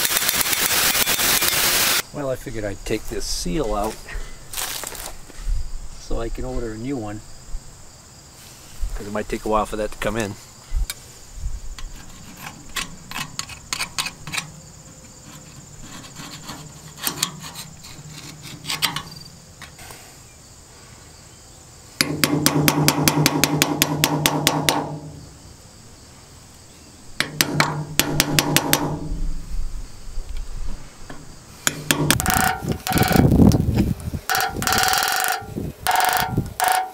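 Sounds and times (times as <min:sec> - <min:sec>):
metal scraping and tapping: 0:11.8 - 0:19.8, 0:31.1 - 0:36.9.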